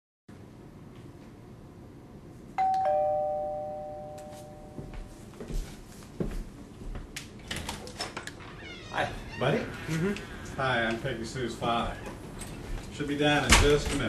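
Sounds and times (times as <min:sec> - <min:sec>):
two-tone doorbell chime: 0:02.6 - 0:05.1.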